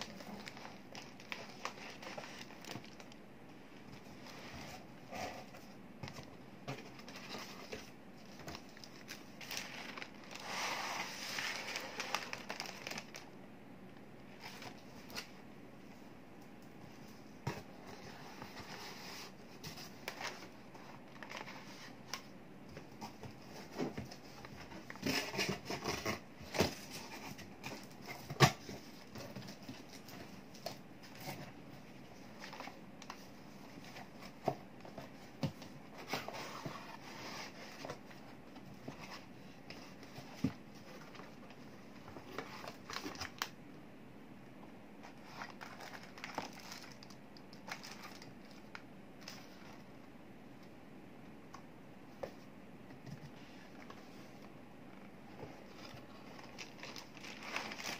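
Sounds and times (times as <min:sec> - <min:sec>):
cardboard boxes rustling: 0:00.0 - 0:03.2, 0:03.9 - 0:13.2, 0:16.9 - 0:43.4, 0:45.0 - 0:47.1, 0:55.4 - 0:57.9
plastic wrap crinkling: 0:00.0 - 0:03.2, 0:06.9 - 0:13.4, 0:45.0 - 0:49.7, 0:55.7 - 0:57.9.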